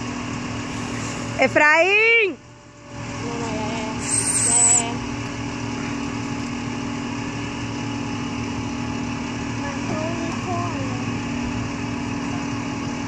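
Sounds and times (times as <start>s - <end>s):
tow truck engine and winch running: 0.0s - 13.0s
high hiss with wavering squeal: 4.0s - 5.0s.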